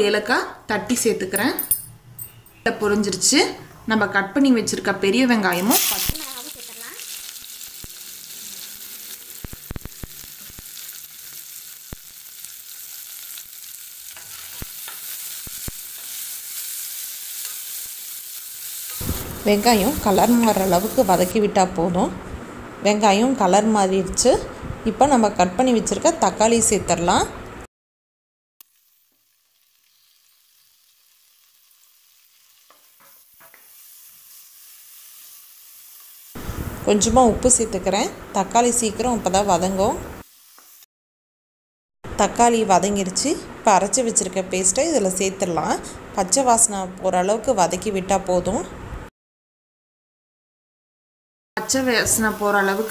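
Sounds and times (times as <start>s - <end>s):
onions sizzling in hot oil: 4.8s - 21.4s, 28.6s - 40.9s, 51.6s - 52.9s.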